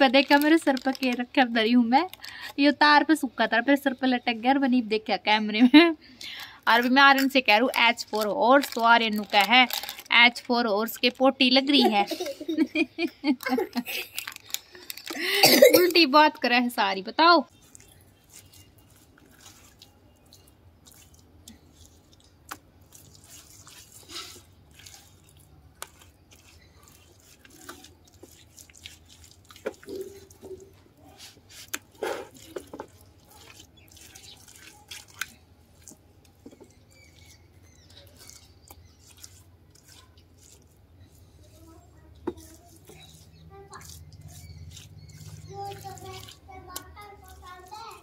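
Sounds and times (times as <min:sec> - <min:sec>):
wet mud dabs: 0:17.5 - 0:48.0.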